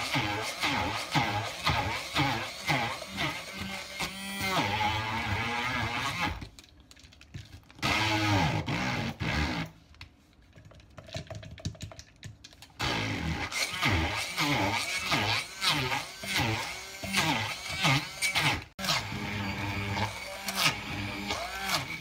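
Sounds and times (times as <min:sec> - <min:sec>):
stick blender motor: 0:00.0 - 0:06.5, 0:07.8 - 0:09.8, 0:12.8 - 0:22.0.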